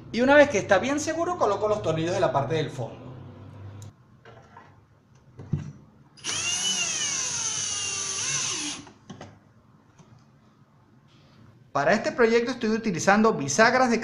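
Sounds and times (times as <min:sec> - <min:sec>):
cordless drill motor whining: 0:06.2 - 0:08.9.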